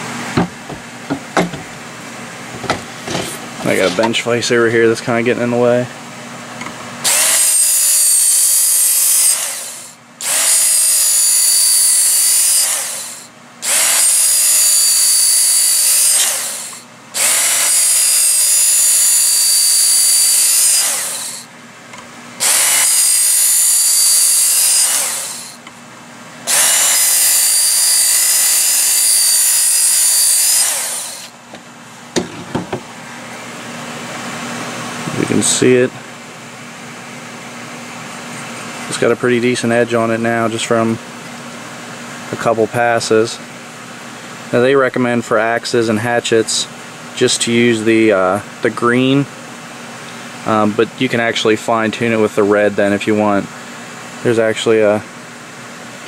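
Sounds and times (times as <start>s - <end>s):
belt sharpener grinding axe: 7.0s - 21.5s, 22.4s - 25.6s, 26.5s - 31.4s.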